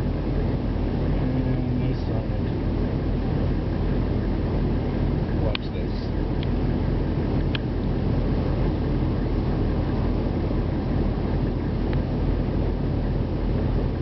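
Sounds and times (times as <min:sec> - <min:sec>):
diesel engine idling: 0:00.0 - 0:14.0.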